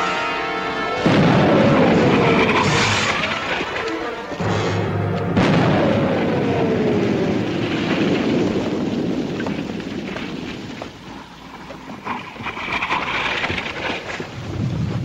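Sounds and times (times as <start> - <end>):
tone sliding downward: 1.0 - 7.7
explosion rumbling: 1.0 - 11.1.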